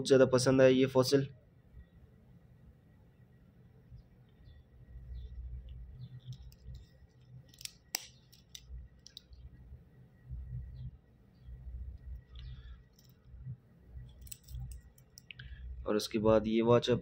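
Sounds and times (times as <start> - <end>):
metal watch bracelet clinking: 6.0 - 9.4, 12.0 - 13.4, 14.0 - 15.4.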